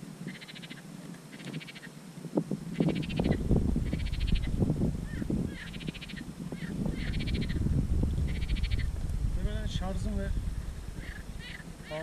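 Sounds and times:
bird chattering call: 0.3 - 1.9, 2.8 - 7.6, 8.3 - 8.9, 11.0 - 12.0
deep rumble: 3.2 - 5.9, 6.5 - 11.9.

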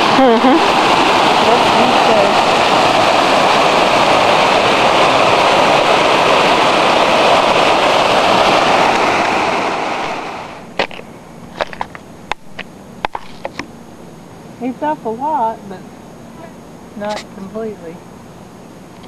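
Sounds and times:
river water rushing: 0.0 - 10.7.

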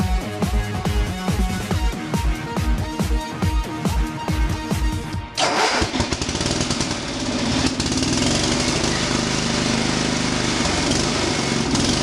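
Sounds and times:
electronic music: 0.0 - 5.4
lawn mower engine running: 5.4 - 12.0.

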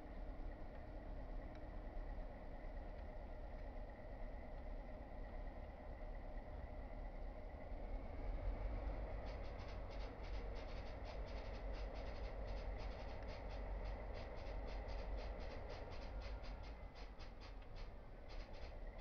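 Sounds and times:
diesel locomotive rumble: 0.0 - 19.0
scratchy clicking: 9.2 - 18.8.

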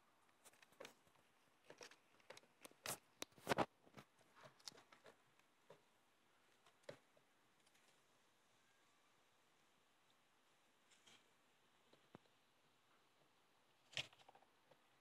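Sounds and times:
kittens scratching and rustling: 0.3 - 8.3.

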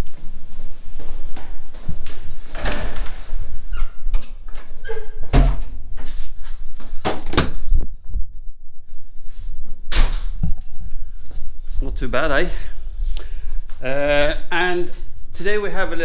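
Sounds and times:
doors opening and shutting: 2.4 - 5.9, 7.0 - 7.7.

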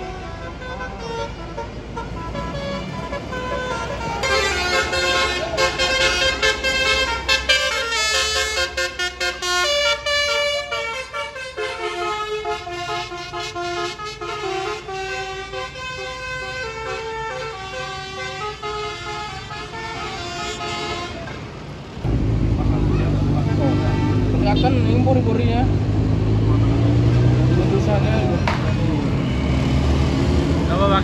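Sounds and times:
musical bus horn playing a tune: 0.0 - 21.5, 23.4 - 24.8
bus engine rumbling: 0.0 - 31.0.

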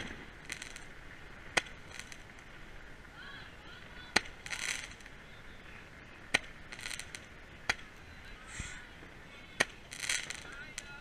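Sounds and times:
sharp pops: 0.0 - 2.5, 4.1 - 5.2, 6.3 - 8.8, 9.5 - 11.0
brief hiss: 8.4 - 9.0.

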